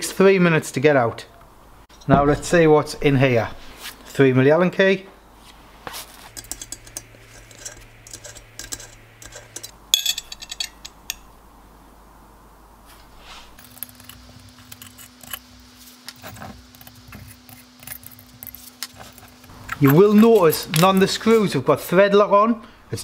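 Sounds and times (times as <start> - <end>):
allen key clicking on screws: 6.3 - 11.2
metal clatter: 6.3 - 11.3.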